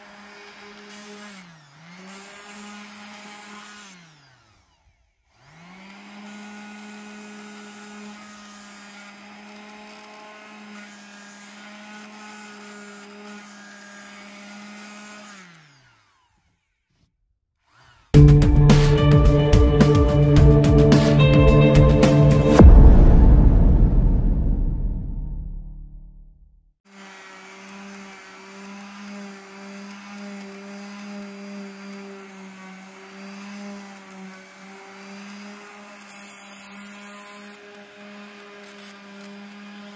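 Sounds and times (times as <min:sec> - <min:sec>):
electric sander motor humming: 0:00.0 - 0:16.9, 0:17.7 - 0:22.6, 0:26.9 - 0:39.9
loud music: 0:18.2 - 0:25.8.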